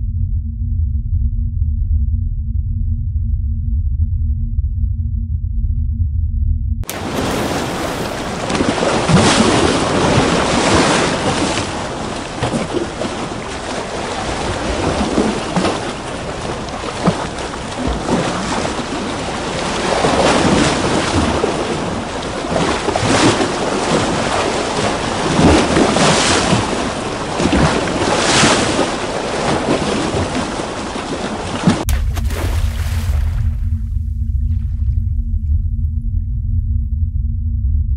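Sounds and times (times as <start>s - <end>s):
ocean waves washing: 6.8s - 34.8s.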